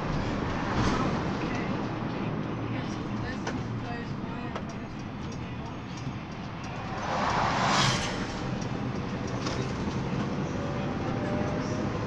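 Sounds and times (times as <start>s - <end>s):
engine and road drone: 0.0s - 12.0s
passing bus whoosh: 6.4s - 11.9s.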